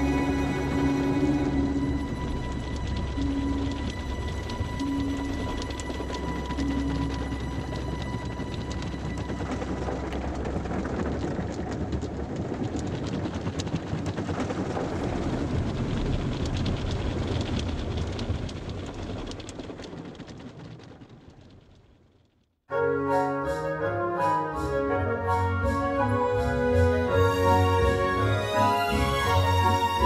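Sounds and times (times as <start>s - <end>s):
dense low noise wash: 0.0s - 20.4s
faint crackles: 0.0s - 22.5s.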